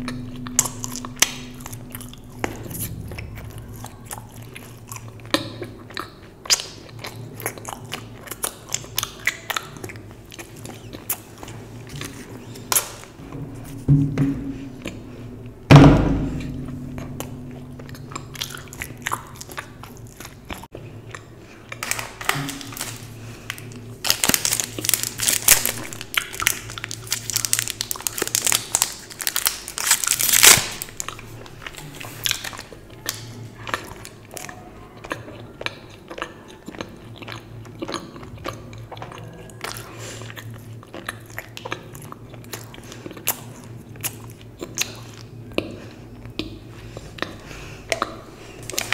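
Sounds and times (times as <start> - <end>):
chocolate being bitten and chewed: 0.0 - 13.2, 16.9 - 48.9
loud thump: 13.2 - 14.9, 15.7 - 17.2
foil wrapper crinkling: 21.8 - 31.1
soft mouth sounds: 31.0 - 48.9.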